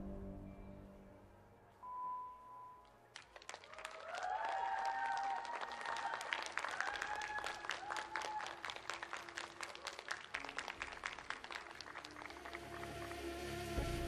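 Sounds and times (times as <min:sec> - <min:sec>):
audience clapping: 0:02.8 - 0:13.8.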